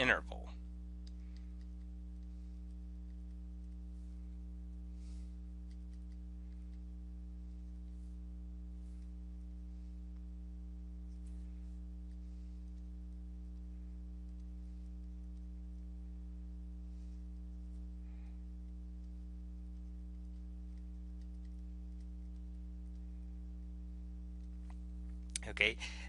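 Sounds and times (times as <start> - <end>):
low electrical hum: 0.0 - 26.0
stylus scratching on screen: 1.2 - 15.8.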